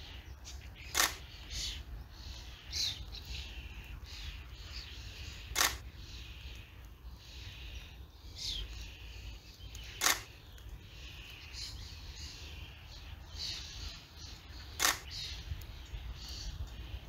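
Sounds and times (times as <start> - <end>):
birds chirping: 0.0 - 17.0
sharp clicks: 0.8 - 1.6, 5.4 - 5.9, 9.6 - 11.4, 14.7 - 16.8.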